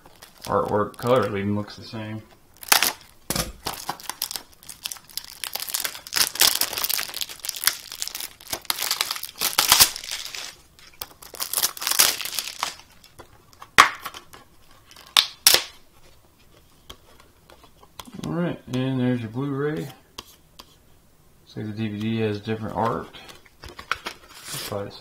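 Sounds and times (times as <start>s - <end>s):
plastic shrink wrap crinkling: 0.0s - 1.7s, 2.5s - 15.8s
plastic wrap snapping: 2.6s - 14.3s, 14.9s - 15.8s.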